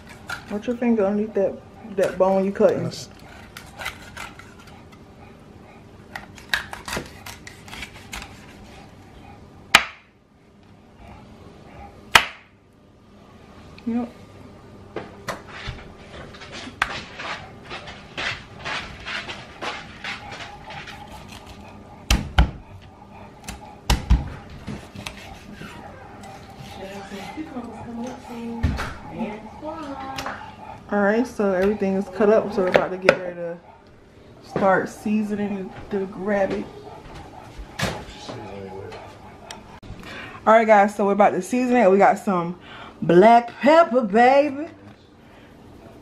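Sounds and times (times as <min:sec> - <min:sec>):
knife cutting through bones: 0:03.2 - 0:04.8, 0:06.2 - 0:08.8, 0:23.4 - 0:27.4.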